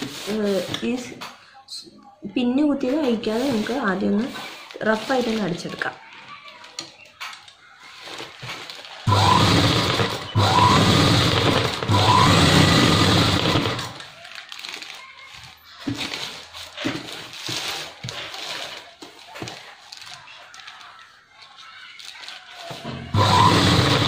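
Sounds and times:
sewing machine running: 0:09.0 - 0:14.0, 0:23.1 - 0:24.0.

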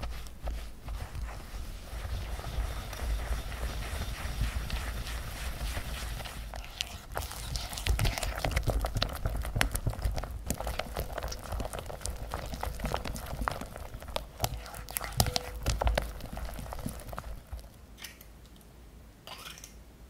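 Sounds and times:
whisk tapping and scraping glass: 0:02.0 - 0:17.6.

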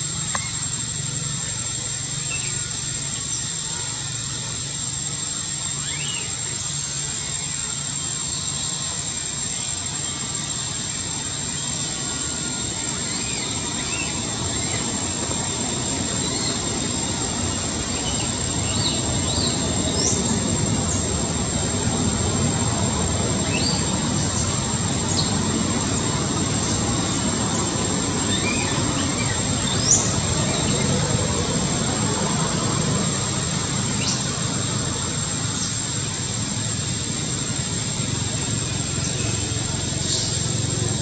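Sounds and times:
constant high-pitched tone: 0:00.0 - 0:41.0
rumbling background noise: 0:00.0 - 0:41.0.

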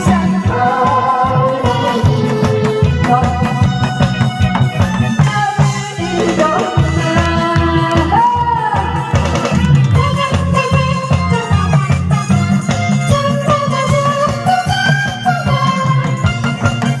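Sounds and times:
up-tempo trot music with drums: 0:00.0 - 0:17.0.

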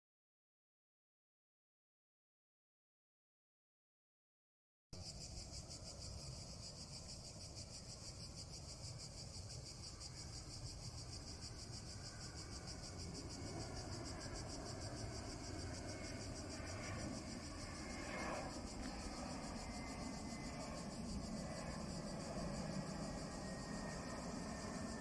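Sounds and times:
cicadas buzzing: 0:05.0 - 0:25.0
low-flying jet airliner: 0:05.0 - 0:25.0.

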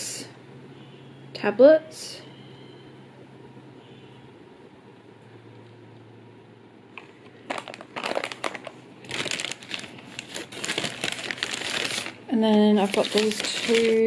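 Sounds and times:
paper bag crinkling: 0:07.0 - 0:14.0.

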